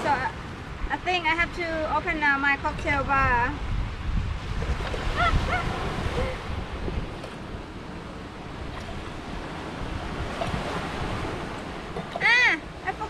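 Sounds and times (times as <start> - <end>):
wind buffeting microphone: 0.0 - 13.0
surf breaking on beach: 4.2 - 13.0.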